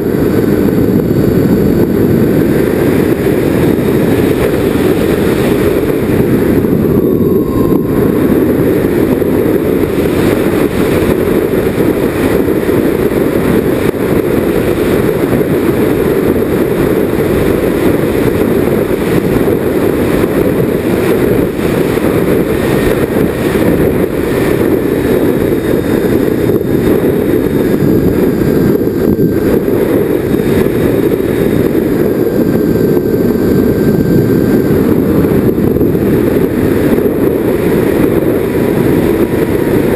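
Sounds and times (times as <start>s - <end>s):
rc airplane motors droning: 0.0s - 13.6s
faint motor whine: 0.0s - 13.7s
wind rushing over microphone: 0.0s - 39.9s.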